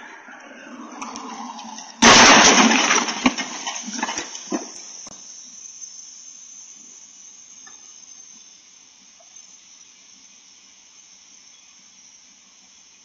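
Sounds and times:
car crash crunch: 0.9s - 5.0s.

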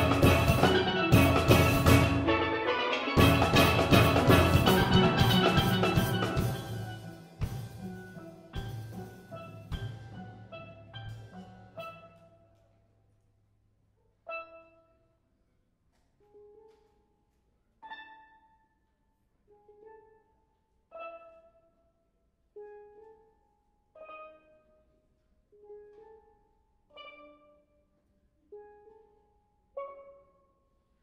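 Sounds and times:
steel pans playing slow chords: 0.0s - 12.4s.

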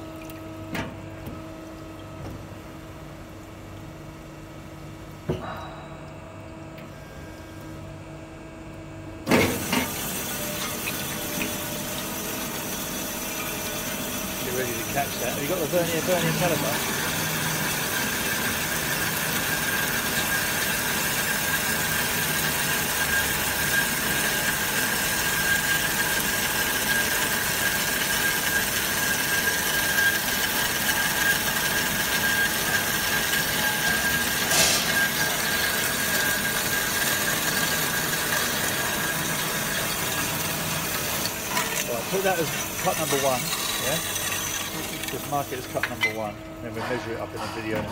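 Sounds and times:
band saw cutting steel: 9.5s - 46.4s.

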